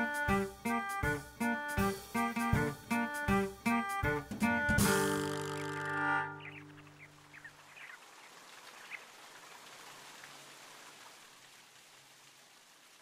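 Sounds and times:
plucked guitar chord: 0:04.8 - 0:06.8
faint rain-like hiss: 0:06.4 - 0:13.0.

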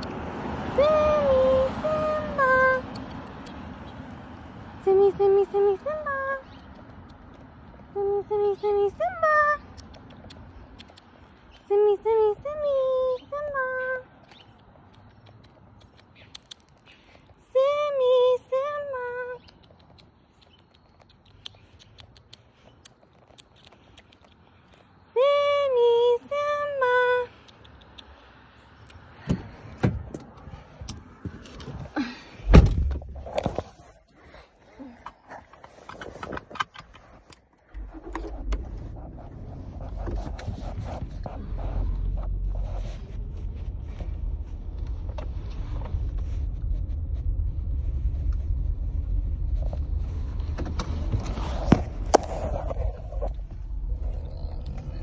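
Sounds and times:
woman calling sing-song: 0:00.6 - 0:03.0, 0:04.8 - 0:06.6, 0:07.9 - 0:09.7, 0:11.6 - 0:14.1, 0:17.4 - 0:19.5, 0:25.0 - 0:27.4
sharp clicks: 0:02.8 - 0:03.9, 0:06.4 - 0:07.8, 0:09.6 - 0:11.7, 0:14.2 - 0:17.4, 0:19.3 - 0:24.9, 0:27.3 - 0:29.1
car door shutting: 0:32.4 - 0:33.2
car rumble inside cabin: 0:37.8 - 0:55.0.

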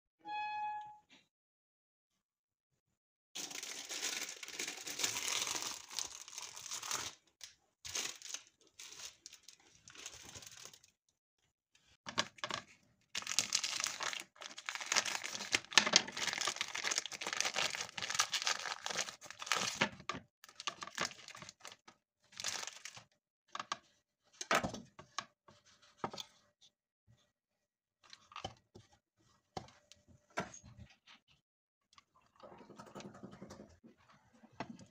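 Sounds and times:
brief pitched tone: 0:00.2 - 0:01.1
plastic wrapping crinkling and tearing: 0:03.4 - 0:10.9, 0:13.2 - 0:21.8, 0:22.4 - 0:23.0.

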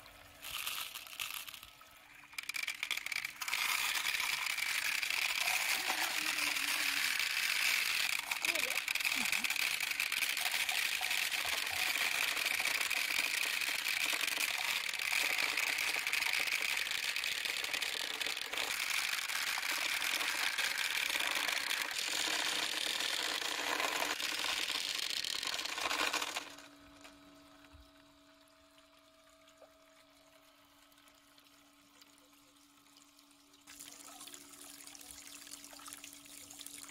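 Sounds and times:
water rushing down a plastic slide: 0:00.0 - 0:26.7
faint steady hum: 0:00.0 - 0:36.9
small fountain splashing: 0:00.0 - 0:36.9.

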